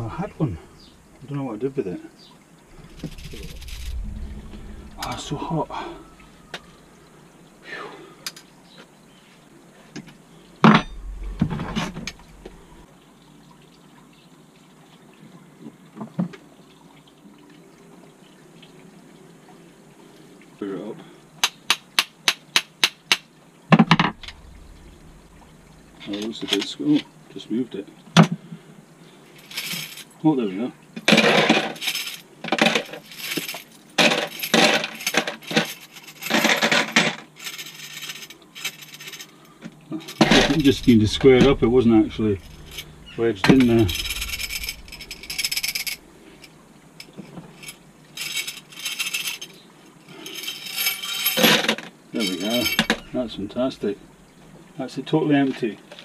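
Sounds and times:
metal parts clattering: 29.4 - 30.1, 31.2 - 39.4, 40.0 - 41.6, 42.4 - 46.0, 47.6 - 49.5, 50.2 - 53.2
nuts and bolts rattling into pot: 31.1 - 39.4, 50.2 - 53.2.

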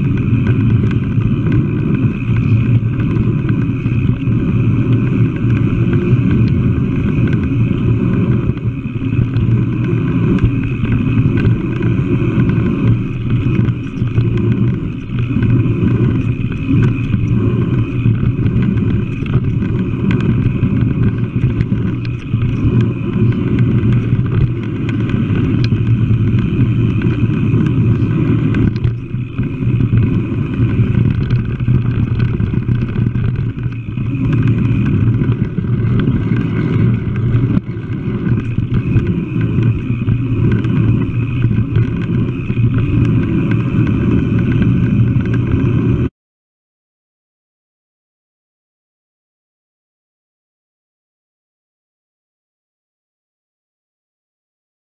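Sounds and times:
mountain bike rolling on dirt: 0.0 - 46.1
wind on microphone: 0.0 - 46.1.

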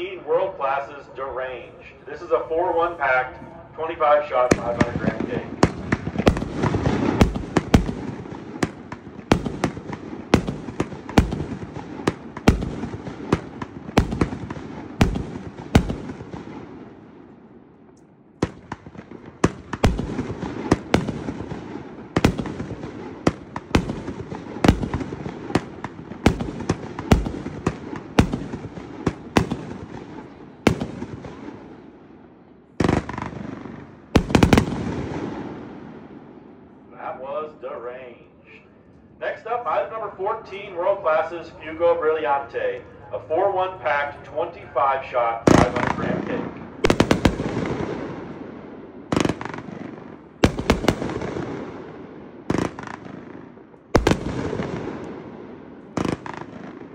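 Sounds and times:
firework bangs: 4.3 - 17.3, 18.4 - 32.0, 32.8 - 36.2, 45.5 - 56.9.

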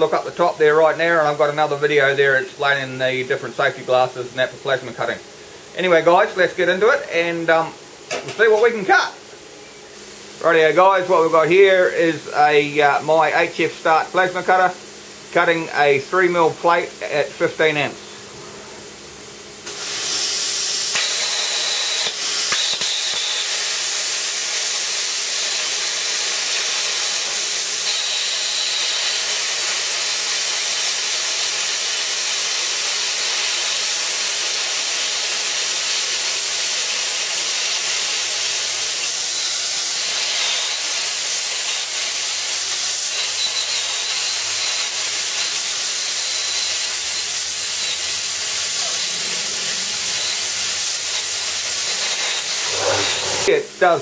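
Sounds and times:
plasma cutter arc hissing: 19.6 - 53.7.

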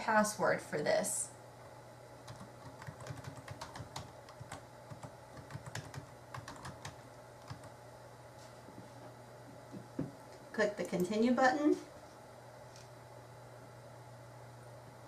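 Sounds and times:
keyboard typing clicks: 2.3 - 7.7.

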